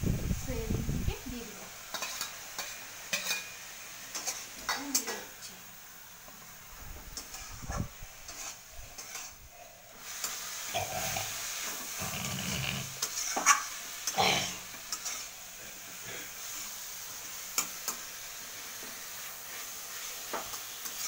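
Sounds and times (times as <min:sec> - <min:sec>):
oil sizzling: 0:00.0 - 0:21.0
spatula scraping pan: 0:01.9 - 0:05.3, 0:07.2 - 0:16.8.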